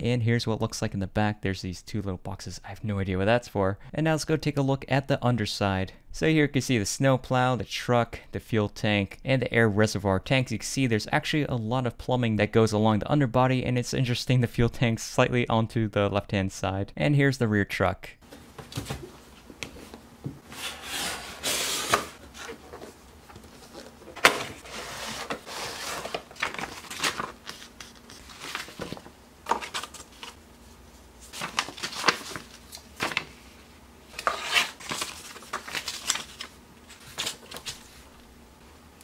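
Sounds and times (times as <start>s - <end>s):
paper sheet rustling: 18.3s - 30.4s, 31.2s - 38.1s
cardboard box rustling and scraping: 20.5s - 27.2s.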